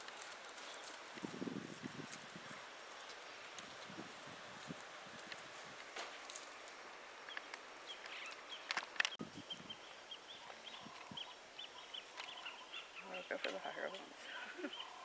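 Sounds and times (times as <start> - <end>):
branches cracking: 0.0 - 9.2
leaves rustling: 0.0 - 15.0
bird chirping: 7.2 - 15.0.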